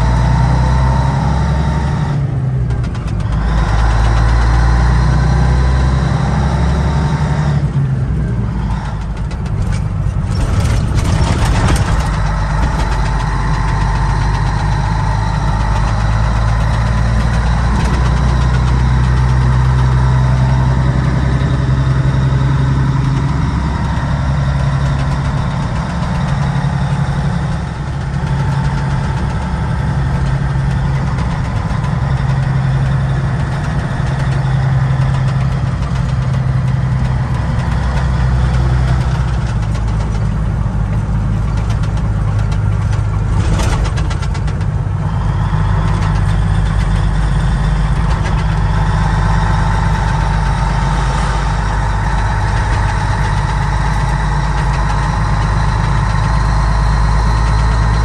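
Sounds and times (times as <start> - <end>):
truck diesel engine running: 0.0 - 58.0
brief rattle: 8.8 - 18.7, 41.5 - 58.0.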